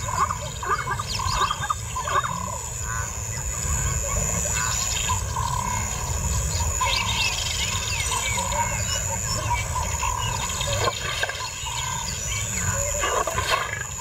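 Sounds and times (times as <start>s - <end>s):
lions growling low: 11.7s - 14.0s.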